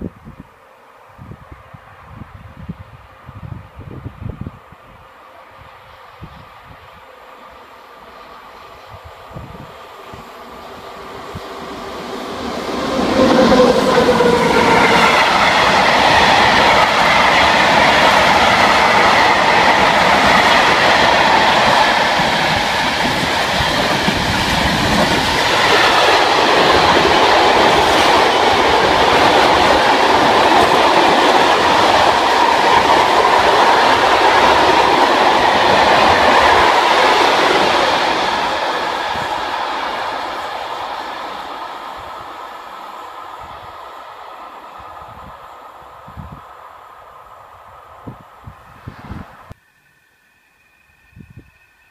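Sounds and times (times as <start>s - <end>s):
freight train passing: 0.0s - 51.9s.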